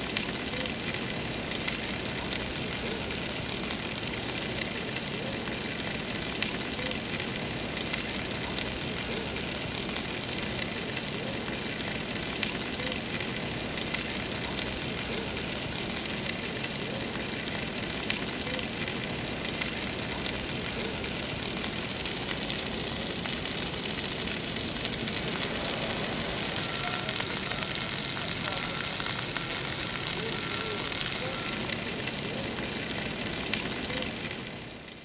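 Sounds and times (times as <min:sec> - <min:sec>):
water spraying onto pavement: 0:00.0 - 0:35.0.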